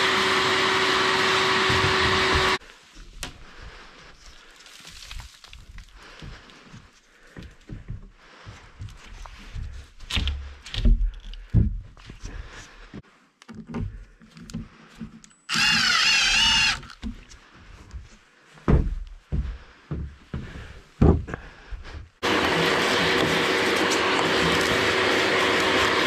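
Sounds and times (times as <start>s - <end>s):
power tool whining: 0.0s - 2.6s, 15.5s - 17.1s, 22.2s - 26.0s.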